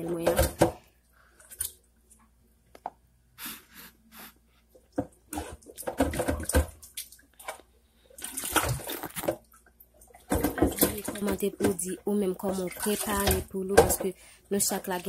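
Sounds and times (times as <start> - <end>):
water sloshing in a basin: 4.8 - 15.0.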